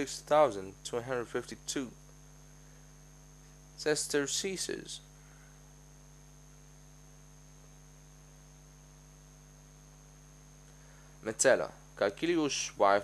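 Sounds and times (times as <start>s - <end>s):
faint electrical hum: 0.0s - 13.0s
thin high whine: 0.0s - 13.0s
light hiss: 10.1s - 12.8s.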